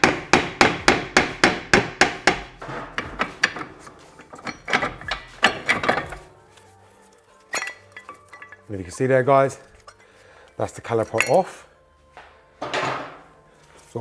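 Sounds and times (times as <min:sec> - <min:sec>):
hammer tapping on metal: 0:00.0 - 0:03.7
metal knocks and rattles: 0:00.0 - 0:06.3.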